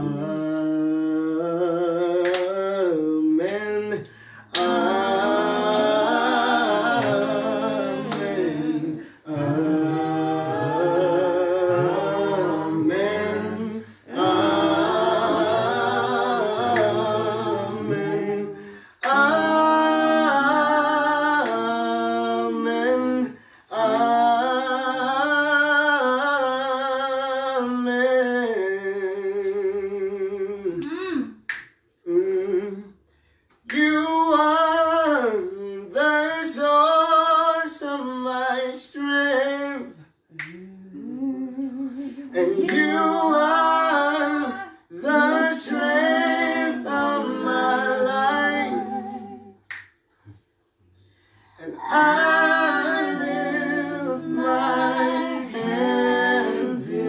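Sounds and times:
person singing a cappella: 0.0s - 49.7s, 51.6s - 57.0s
finger snaps: 2.2s - 2.5s, 30.8s - 31.8s, 33.5s - 34.0s, 40.3s - 40.7s, 49.6s - 50.4s.

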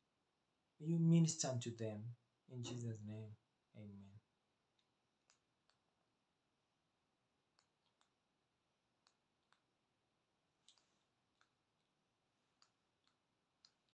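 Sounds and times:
faint clicks: 10.6s - 14.0s.

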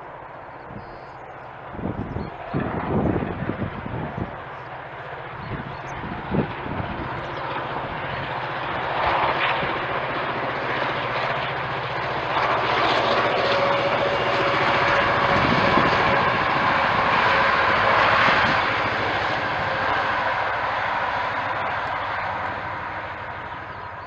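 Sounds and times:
diesel locomotive engine running: 11.6s - 24.0s.

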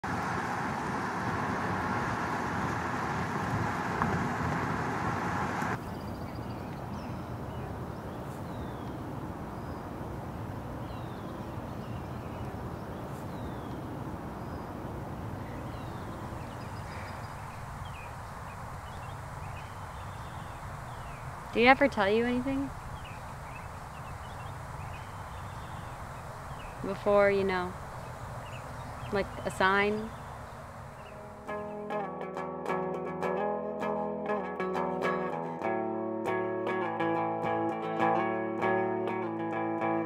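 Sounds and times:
rain rushing on a car: 0.1s - 5.8s
birds chirping: 5.7s - 10.0s, 10.7s - 32.0s.

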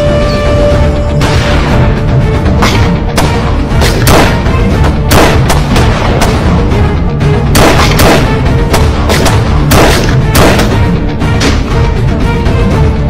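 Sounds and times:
dramatic background music: 0.0s - 13.0s
single gunshots: 2.6s - 4.5s, 5.1s - 6.5s, 7.5s - 10.8s.

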